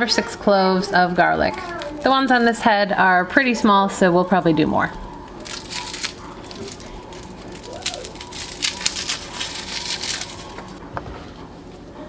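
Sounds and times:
garlic skins crackling: 5.2s - 10.8s.

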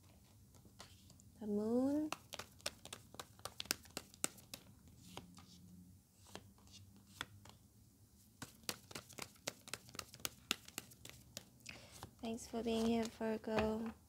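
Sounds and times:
cards shuffled and dealt: 2.0s - 5.6s, 6.2s - 7.6s, 8.4s - 14.0s.

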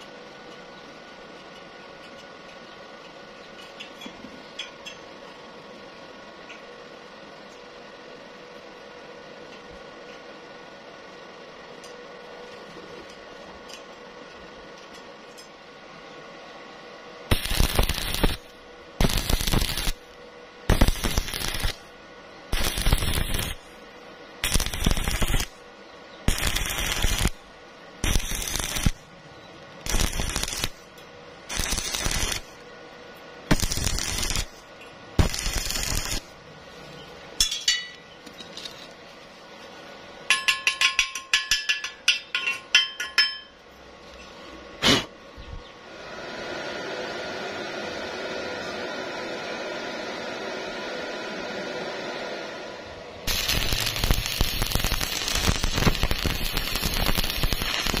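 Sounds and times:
welding arc crackling: 17.3s - 23.8s, 24.4s - 25.6s, 26.2s - 29.1s, 29.8s - 32.7s, 33.4s - 36.4s, 53.2s - 58.0s.

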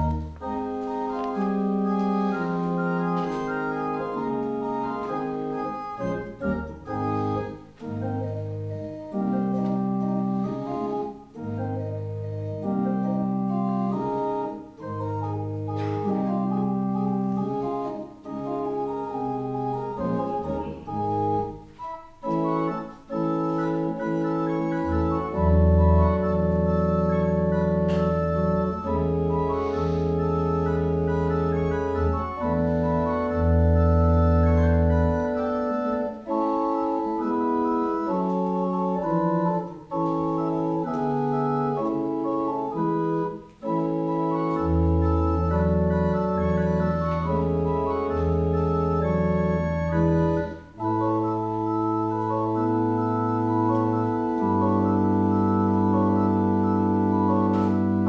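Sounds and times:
organ playing sustained chords: 0.0s - 58.0s.

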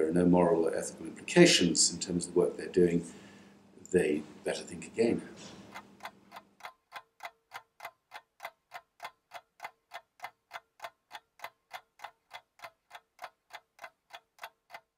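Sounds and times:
steady ticking: 5.0s - 14.9s.

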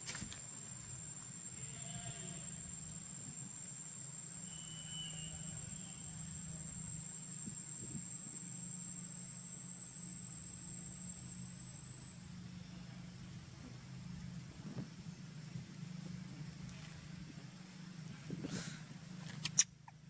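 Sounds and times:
low steady hum: 0.0s - 20.0s
insect trilling: 0.3s - 12.2s.

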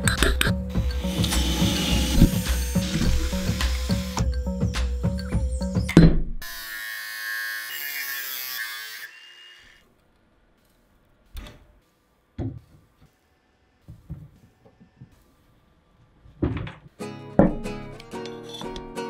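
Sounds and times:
power tool whining: 0.7s - 9.8s.

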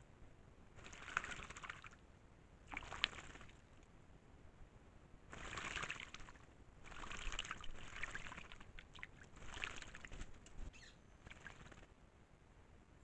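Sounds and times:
birds splashing in water: 0.8s - 2.0s, 2.6s - 3.8s, 5.3s - 11.9s.

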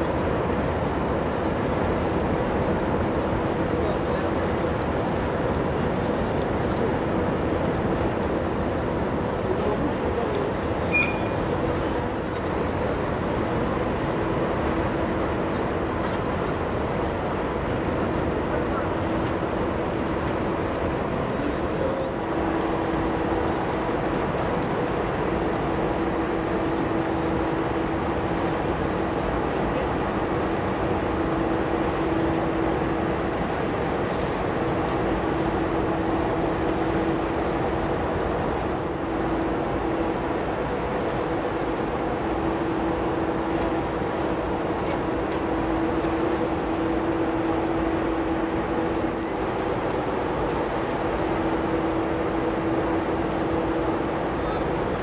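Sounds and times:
ferry engines rumbling: 0.0s - 55.0s
brief high chirp: 10.9s - 11.4s.

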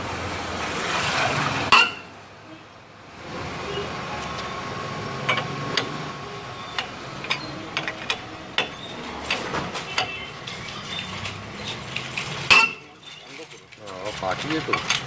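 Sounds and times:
steady background noise: 0.0s - 15.0s
wheel brace clicking on wheel nuts: 6.7s - 15.0s.

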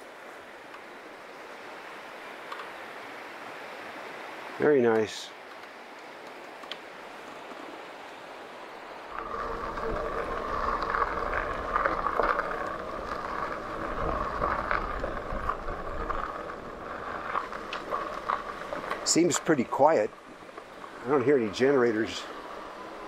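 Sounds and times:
creek water rushing: 0.0s - 23.0s
wind rumbling on microphone: 5.8s - 23.0s
tyres on gravel: 9.1s - 23.0s.

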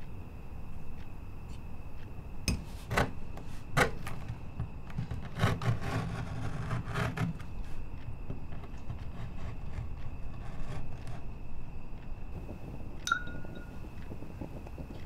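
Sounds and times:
knife cutting leather: 4.9s - 7.4s.

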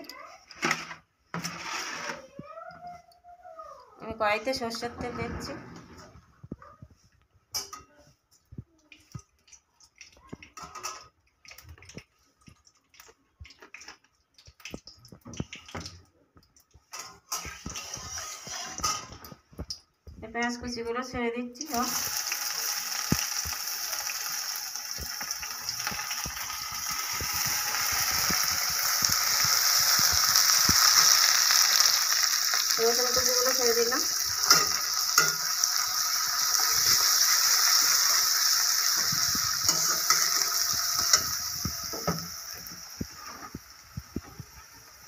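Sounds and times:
metal spatula scraping pan: 0.6s - 2.4s, 16.9s - 19.4s, 32.8s - 42.3s
onions sizzling in oil: 17.2s - 19.1s, 21.6s - 45.0s.

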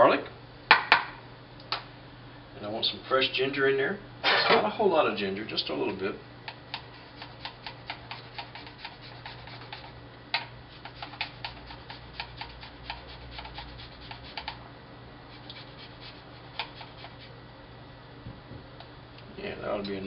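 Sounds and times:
ginger scraping on a grater: 6.9s - 9.9s, 10.7s - 14.6s, 15.3s - 17.3s.

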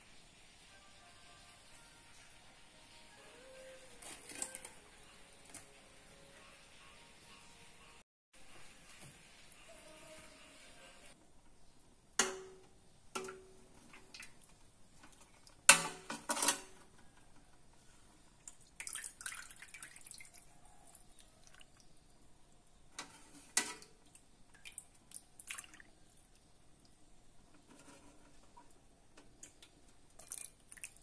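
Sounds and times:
soup splashing and dripping: 18.4s - 20.5s, 24.1s - 27.0s, 29.4s - 31.0s.

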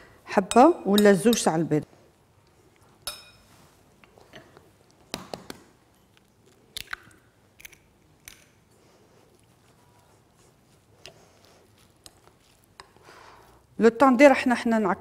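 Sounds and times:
spoon clinking glass bowl: 3.0s - 3.5s
egg cracking: 5.1s - 8.6s
mixture being stirred: 8.8s - 13.7s.

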